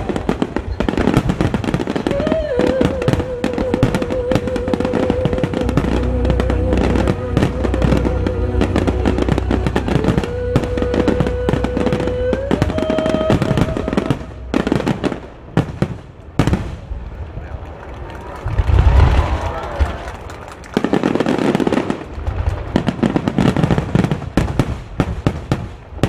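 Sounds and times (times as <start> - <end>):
fireworks bangs and crackle: 0.0 - 26.0
music with long wavering note: 2.0 - 14.9.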